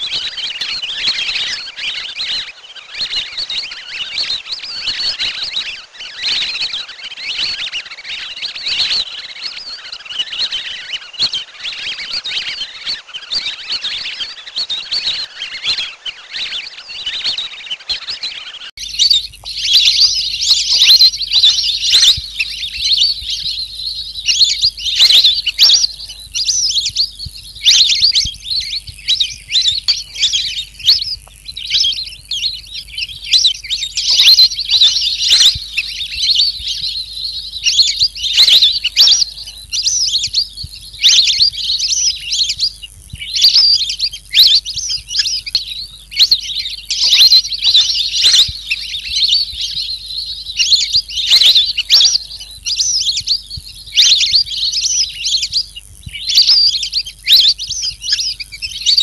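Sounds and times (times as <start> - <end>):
bird chirping: 0.0 - 59.0
faint low hum: 18.8 - 59.0.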